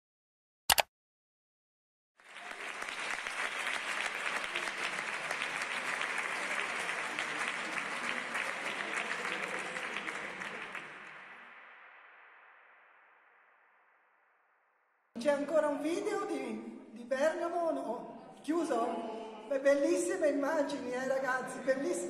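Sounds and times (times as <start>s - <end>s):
audience applauding: 2.2s - 11.8s.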